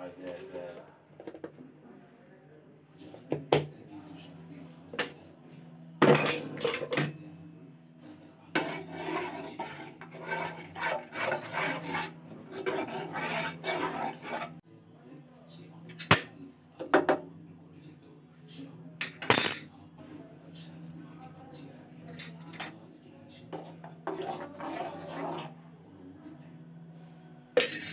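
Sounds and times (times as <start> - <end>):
ladle stirring milk in pot: 8.6 - 14.6, 23.5 - 25.6.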